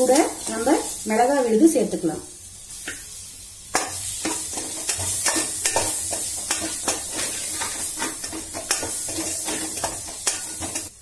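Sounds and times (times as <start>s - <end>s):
vegetables sizzling in oil: 0.0s - 11.0s
spatula scraping metal pan: 3.8s - 11.0s.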